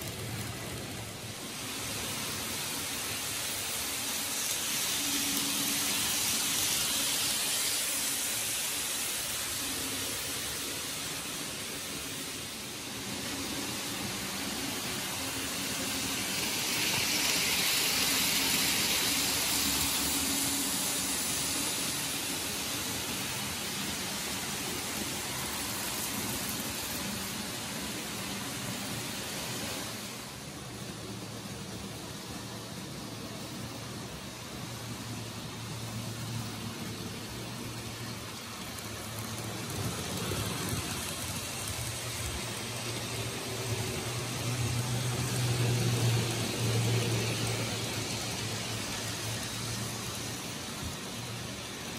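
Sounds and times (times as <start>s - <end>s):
model train wheels rattling: 0.0s - 5.0s, 35.4s - 51.9s
model trains running on track: 0.0s - 51.9s.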